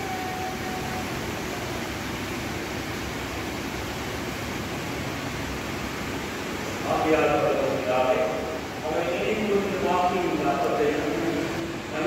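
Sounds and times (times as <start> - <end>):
electric fans whooshing: 0.0 - 12.0.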